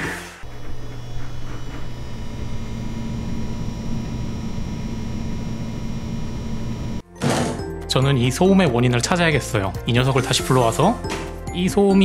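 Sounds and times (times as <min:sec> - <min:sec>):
thin high whine: 0:00.4 - 0:07.0
water pump humming: 0:00.4 - 0:07.0.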